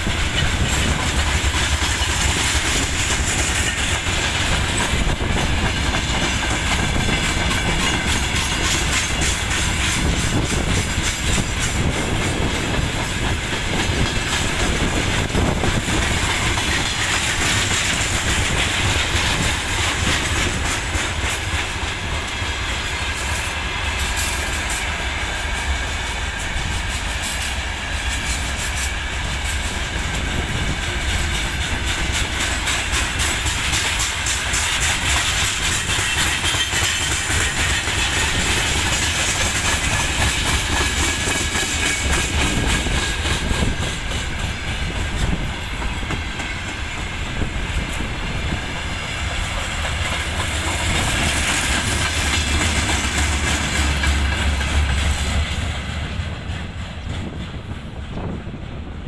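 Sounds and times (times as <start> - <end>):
train wheels clattering over rail joints: 0.0 - 59.0.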